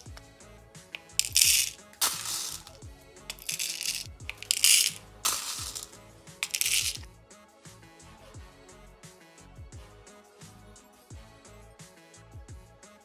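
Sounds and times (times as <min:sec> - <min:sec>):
plastic trays clicking and rattling: 0:01.0 - 0:02.7, 0:03.3 - 0:07.0
beads being spooned: 0:01.0 - 0:07.0.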